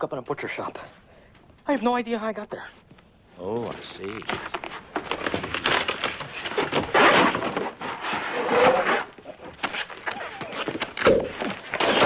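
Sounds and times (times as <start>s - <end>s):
plastic collar rustling: 3.6s - 12.0s.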